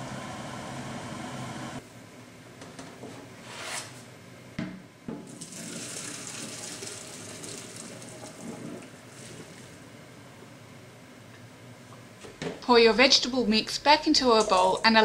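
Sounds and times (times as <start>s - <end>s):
water pouring into colander: 5.3s - 9.7s.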